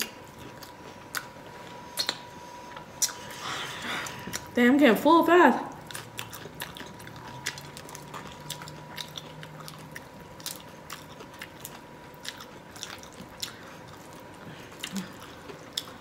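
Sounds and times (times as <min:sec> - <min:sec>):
chewing and crunching shrimp shells: 0:05.7 - 0:16.0.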